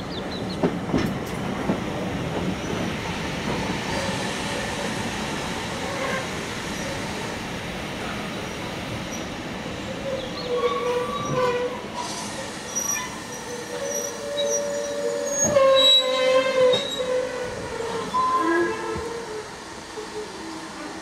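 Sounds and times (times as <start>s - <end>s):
train wheels squealing: 10.0s - 20.6s.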